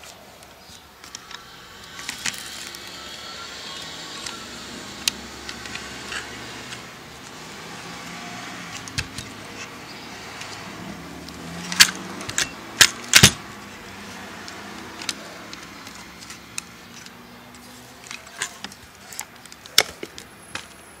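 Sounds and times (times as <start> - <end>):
camera metal clicks and clacks: 11.3 - 13.4.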